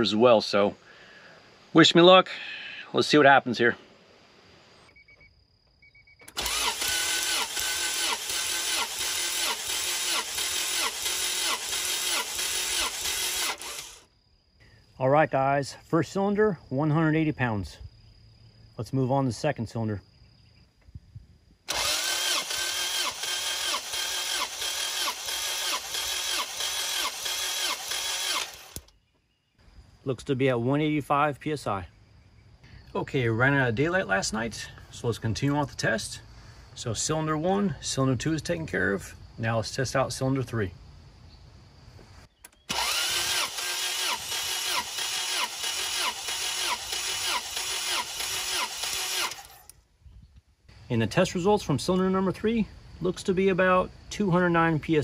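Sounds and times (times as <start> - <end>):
starter motor cranking engine: 6.3 - 14.1, 21.7 - 29.0, 42.5 - 49.7.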